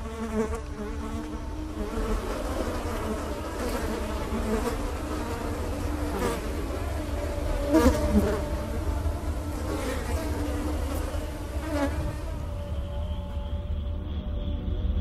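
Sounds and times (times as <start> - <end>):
wavering buzzing drone: 0.0 - 15.0.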